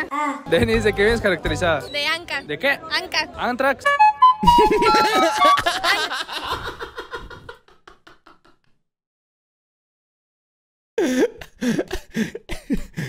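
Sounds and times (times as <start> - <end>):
voices and laughter: 4.4 - 7.7
man laughing: 4.4 - 8.5, 11.0 - 13.0.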